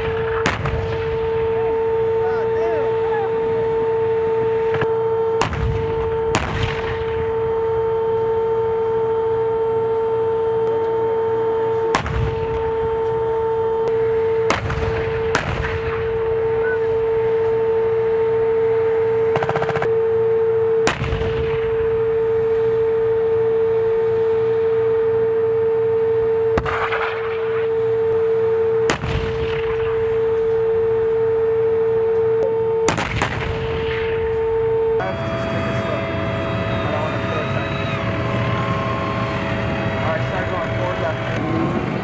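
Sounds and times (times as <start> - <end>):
sharp gunshots: 0.0 - 1.9, 4.6 - 7.4, 11.9 - 12.6, 14.4 - 16.3, 19.3 - 19.9, 20.8 - 21.8, 26.6 - 27.7, 28.9 - 30.3, 32.8 - 34.3
turbine engine whine: 0.0 - 42.0
machine-gun burst: 19.3 - 19.9.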